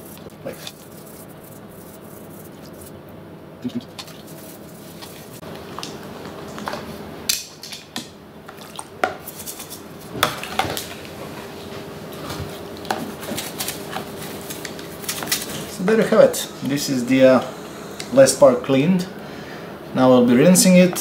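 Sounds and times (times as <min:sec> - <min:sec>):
toothbrush scrubbing plastic parts: 0:00.0 - 0:03.0, 0:03.8 - 0:05.4
water sloshing: 0:03.9 - 0:05.9.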